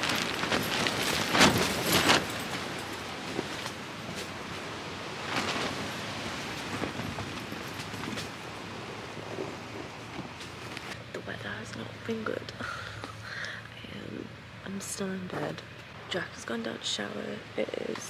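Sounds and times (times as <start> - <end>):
wind buffeting a tent: 0.0 - 11.1.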